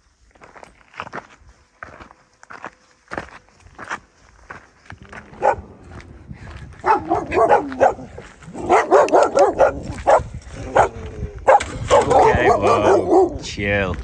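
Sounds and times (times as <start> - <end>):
dogs barking: 5.1 - 6.0, 6.7 - 13.4.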